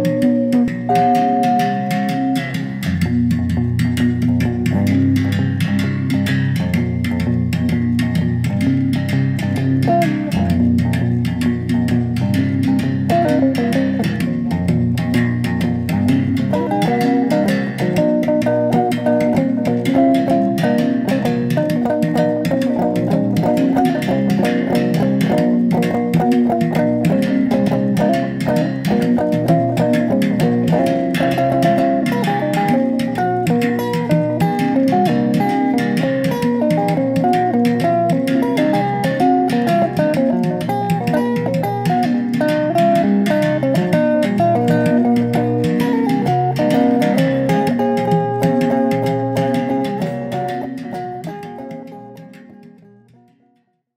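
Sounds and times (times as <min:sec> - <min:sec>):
musical bow string struck with stick: 0:00.0 - 0:53.6.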